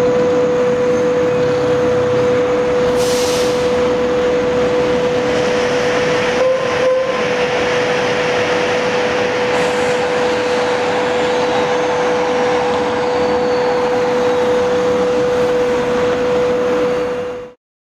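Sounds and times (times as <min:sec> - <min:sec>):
machine hum with rushing noise: 0:00.0 - 0:17.6.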